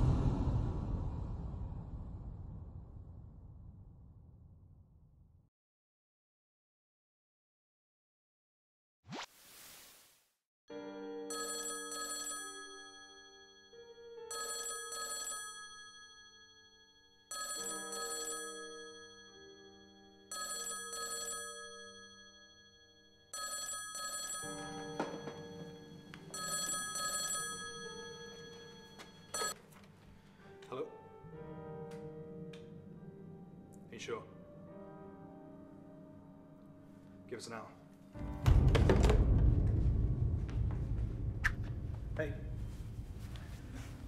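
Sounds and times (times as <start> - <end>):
whoosh: 0.0 - 5.4, 38.5 - 44.0
telephone double ring: 20.3 - 22.6, 23.3 - 29.6
soft sustained music: 27.8 - 39.4.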